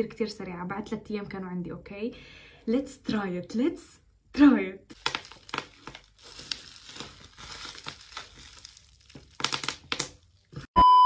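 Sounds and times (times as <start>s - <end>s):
plastic wrapper crinkling: 4.9s - 10.7s.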